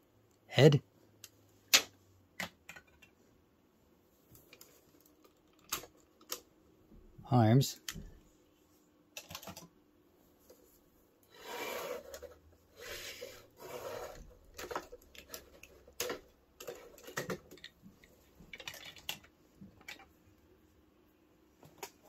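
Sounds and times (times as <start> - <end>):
plastic toy parts clicking: 9.2 - 9.7, 14.6 - 20.1.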